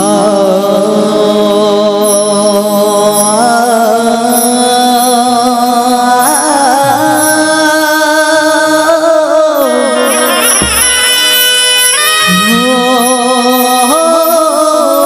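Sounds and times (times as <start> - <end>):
man singing long ornamented notes: 0.0 - 15.0.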